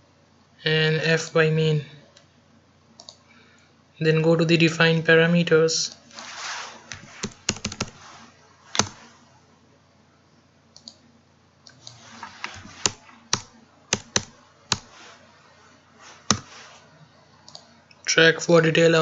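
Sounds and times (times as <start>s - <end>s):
keyboard typing: 6.9s - 8.0s, 8.7s - 9.0s, 11.7s - 15.0s, 16.3s - 16.5s.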